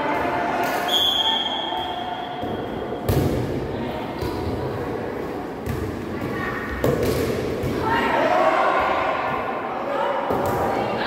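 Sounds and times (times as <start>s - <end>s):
volleyball hits echoing: 0.1s - 4.8s, 5.6s - 8.0s.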